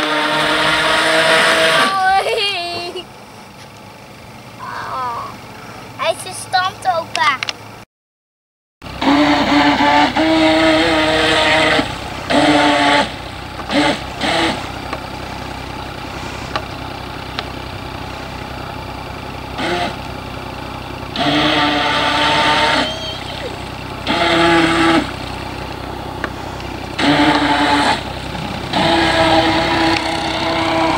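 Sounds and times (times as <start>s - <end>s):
model speedboat motor revving: 0.0s - 2.9s, 8.8s - 16.8s, 19.4s - 20.2s, 21.1s - 30.9s.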